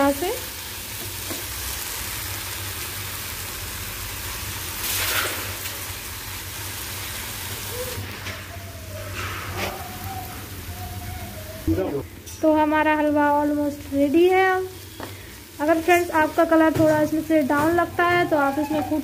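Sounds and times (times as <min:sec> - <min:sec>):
carrots sizzling in a pan: 0:00.0 - 0:08.2, 0:12.4 - 0:19.0.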